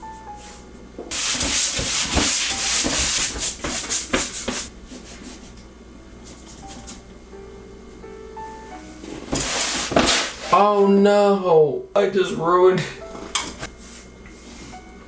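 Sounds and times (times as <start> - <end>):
paintbrush scratching on canvas: 1.1 - 5.5.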